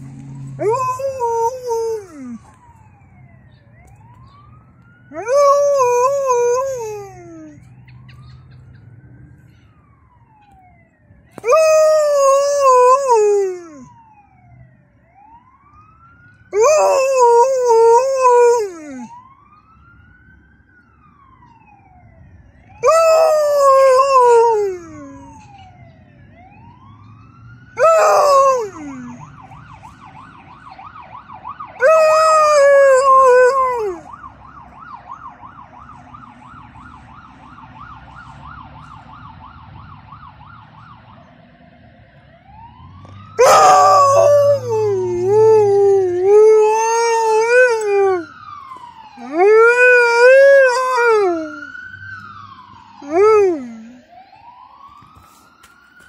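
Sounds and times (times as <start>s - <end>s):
ambulance siren wailing: 0.0s - 56.0s
dog howling: 0.6s - 2.4s, 5.1s - 7.6s, 11.4s - 13.9s, 16.6s - 19.1s, 22.8s - 25.4s, 27.8s - 29.2s, 31.8s - 34.1s, 43.4s - 48.3s, 49.2s - 51.7s, 53.0s - 54.0s.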